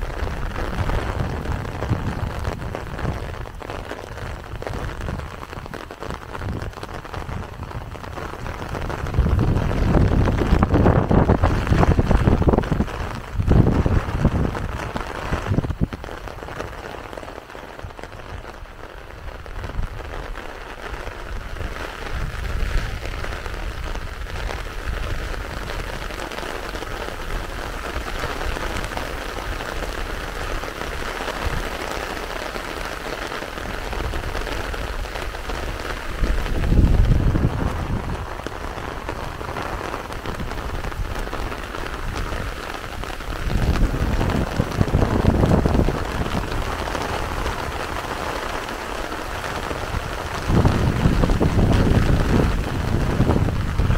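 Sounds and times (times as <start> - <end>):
low thunder rumbles: 0.0 - 16.6, 33.6 - 53.9
heavy rain: 0.0 - 53.9.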